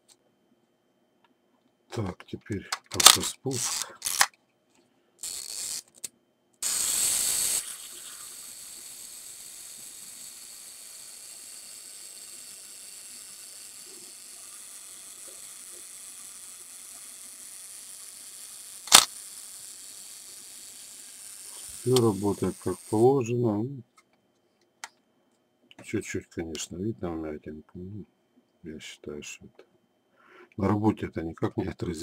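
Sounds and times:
camera shutter click: 0:02.9 - 0:04.3, 0:18.9 - 0:19.2
camera self-timer mechanism: 0:03.0 - 0:04.3, 0:05.2 - 0:05.9, 0:06.6 - 0:23.1
clockwork escapement running: 0:06.6 - 0:23.1.

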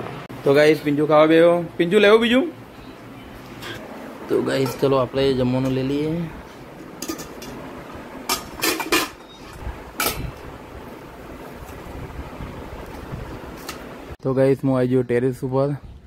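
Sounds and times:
steel spoon clinking on pots: 0:04.5 - 0:05.0, 0:07.0 - 0:07.6.

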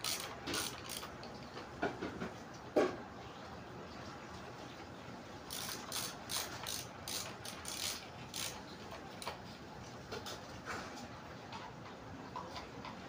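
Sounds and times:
screwdriver clicking on screws: 0:00.0 - 0:01.4, 0:05.5 - 0:08.6.

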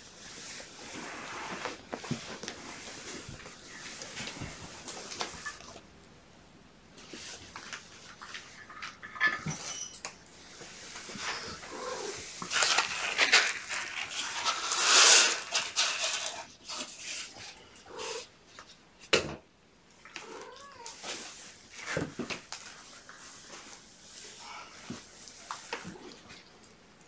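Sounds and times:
rustle and clatter of handling: 0:07.0 - 0:17.8.

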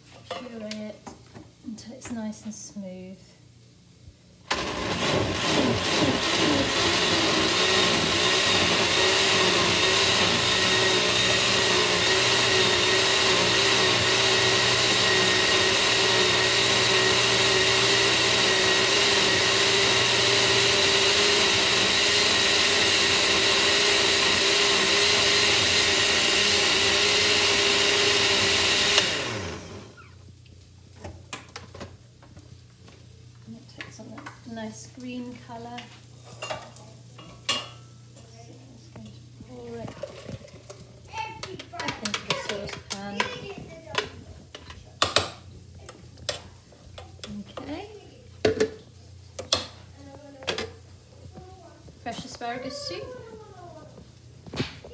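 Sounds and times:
blender motor whine: 0:04.5 - 0:30.2.

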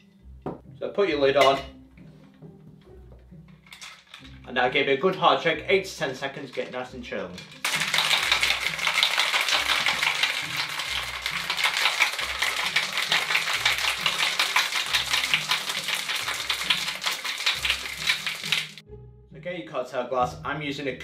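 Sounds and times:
ice rattling in metal shaker: 0:03.6 - 0:04.4, 0:06.4 - 0:18.8.

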